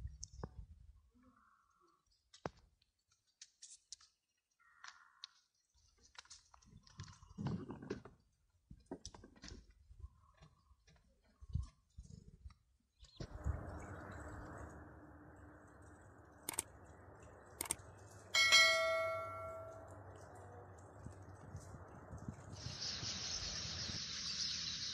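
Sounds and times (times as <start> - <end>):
low rumble: 13.2 - 18.0.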